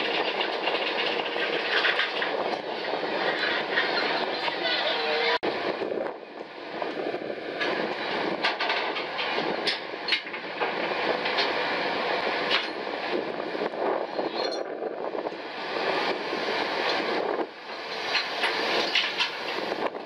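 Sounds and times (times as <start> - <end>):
machinery rattling clatter: 0.0 - 4.8, 6.4 - 20.0.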